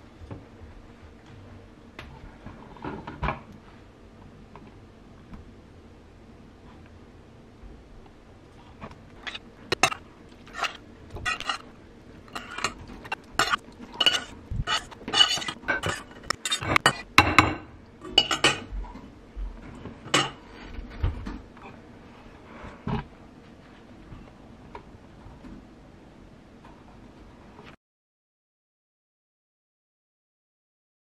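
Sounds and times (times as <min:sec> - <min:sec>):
dishes and cutlery clinking: 0:09.2 - 0:11.6, 0:12.3 - 0:18.8, 0:20.0 - 0:20.4.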